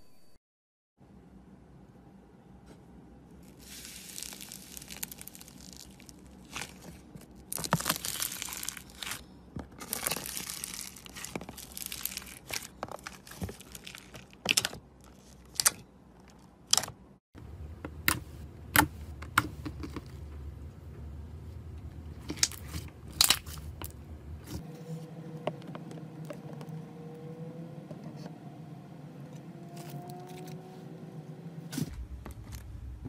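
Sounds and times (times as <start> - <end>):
foam-bead slime crackling: 3.4 - 9.2, 9.8 - 15.7
low hum: 17.4 - 33.0.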